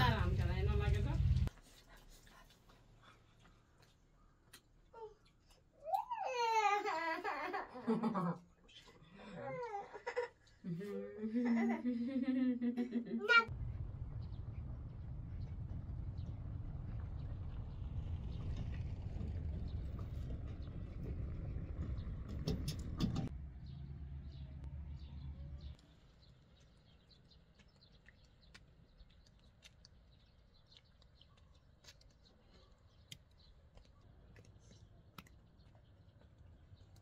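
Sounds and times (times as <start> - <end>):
low rumble: 0.0 - 1.5, 13.5 - 26.1.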